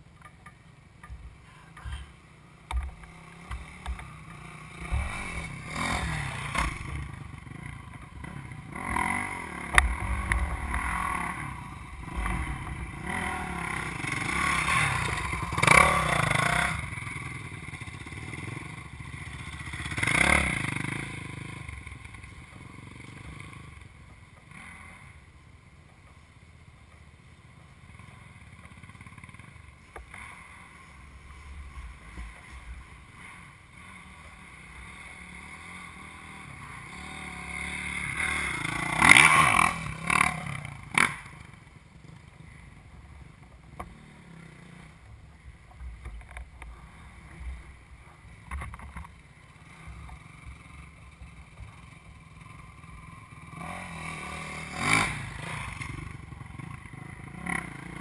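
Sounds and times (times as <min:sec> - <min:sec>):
dirt bike engine revving: 0:01.5 - 0:23.8, 0:30.1 - 0:42.7, 0:49.6 - 0:58.0.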